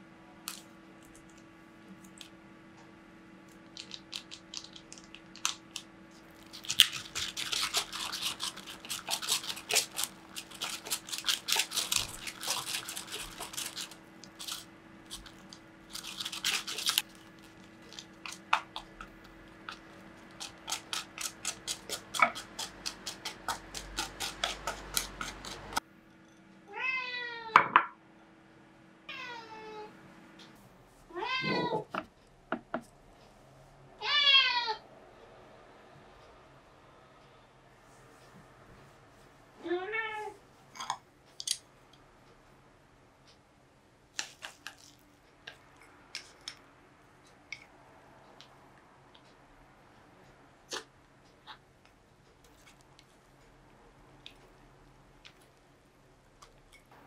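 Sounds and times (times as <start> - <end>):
cat meowing: 29.1 - 29.9, 31.1 - 31.9.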